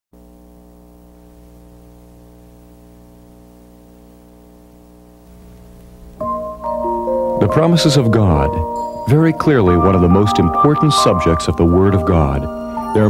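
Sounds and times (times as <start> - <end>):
faint hiss: 0.2 - 9.6
electrical mains hum: 0.2 - 13.0.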